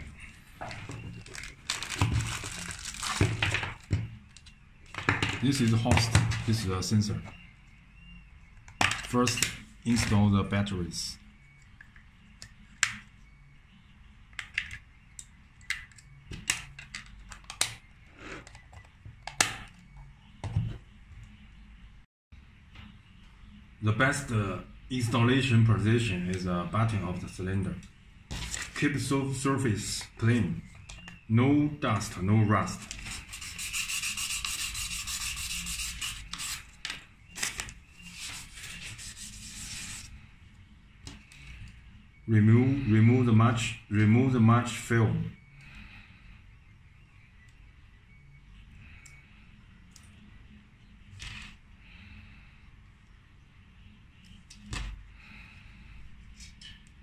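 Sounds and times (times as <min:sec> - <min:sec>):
sandpaper scratching rusty steel: 0:33.0 - 0:36.7.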